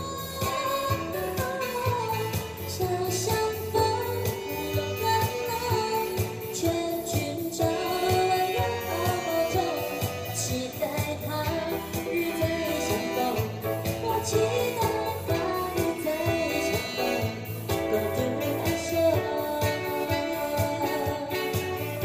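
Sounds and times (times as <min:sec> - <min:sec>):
electronic keyboard with steady beat: 0:00.0 - 0:22.0
saxophone: 0:00.0 - 0:22.0
woman singing into a microphone: 0:00.0 - 0:22.0.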